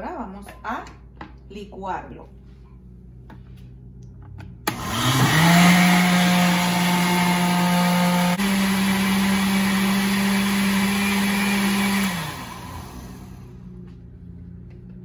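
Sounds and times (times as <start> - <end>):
blender switch click: 4.7 - 4.9
blender motor running: 4.7 - 13.7.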